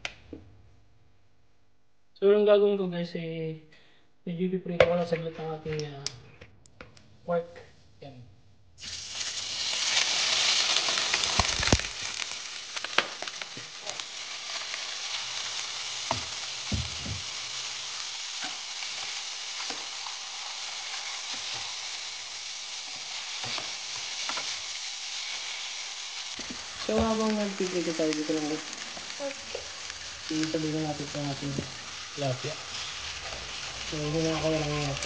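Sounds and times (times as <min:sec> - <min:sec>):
meat sizzling in a frying pan: 0:08.8 - 0:35.0.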